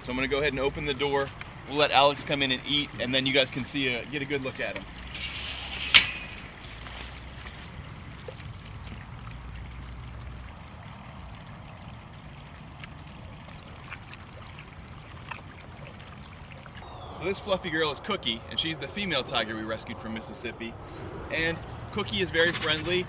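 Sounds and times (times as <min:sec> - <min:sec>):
low steady rumble: 0:16.2 - 0:23.0.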